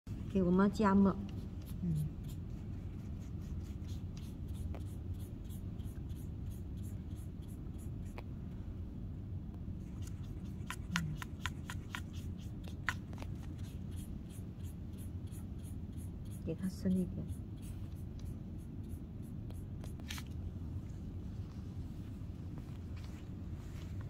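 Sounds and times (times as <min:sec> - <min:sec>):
low room hum: 0:00.1 - 0:24.0
paintbrush tapping and scraping: 0:01.1 - 0:08.3, 0:09.8 - 0:16.5.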